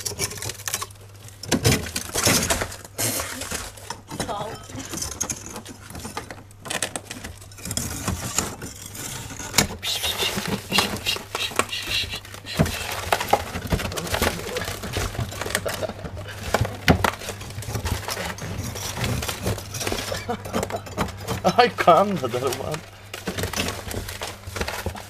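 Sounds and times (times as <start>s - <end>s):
ferret scratching in frost: 7.8s - 14.9s.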